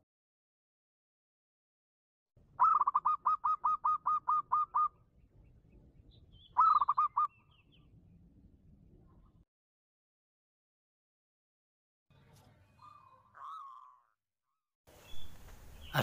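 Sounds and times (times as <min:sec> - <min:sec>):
dove cooing: 0:02.6 - 0:05.0, 0:06.5 - 0:07.4.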